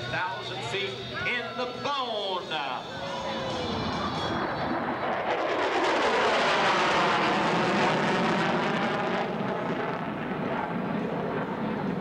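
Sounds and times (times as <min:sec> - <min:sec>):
jet afterburner roar: 0:02.4 - 0:12.0.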